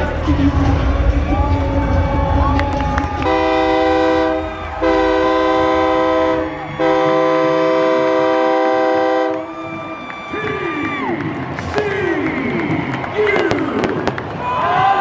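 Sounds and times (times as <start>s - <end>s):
stadium horn blasts: 3.2s - 9.6s.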